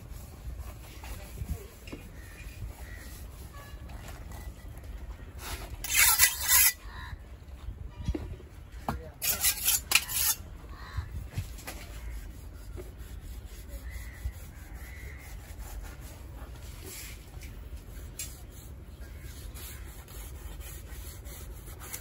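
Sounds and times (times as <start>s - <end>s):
knife blade scraping: 5.8s - 6.8s, 9.2s - 10.5s.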